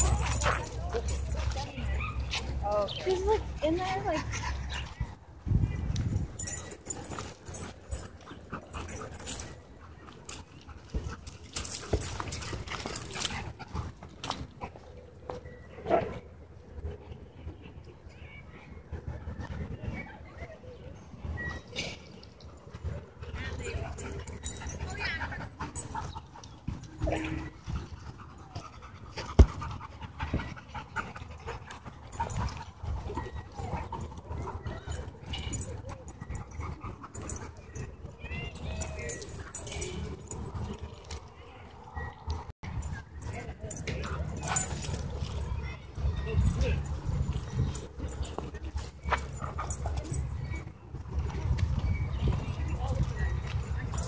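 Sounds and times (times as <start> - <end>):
dogs panting: 0.0 - 5.2, 6.4 - 15.0, 22.5 - 42.5, 43.2 - 50.7.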